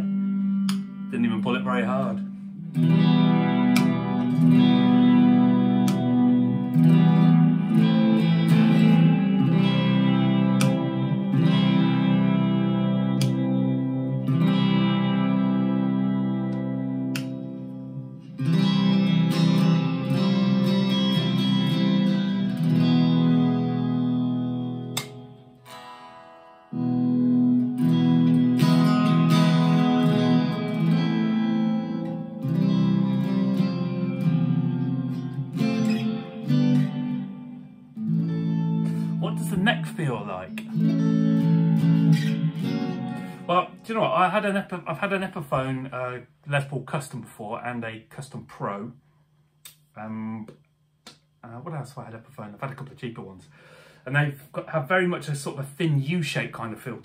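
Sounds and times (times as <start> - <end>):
electric guitar strumming: 0.0 - 48.0
guitar strings muted click: 0.6 - 1.1, 2.7 - 12.2, 13.0 - 14.6, 16.4 - 22.9, 24.8 - 26.1.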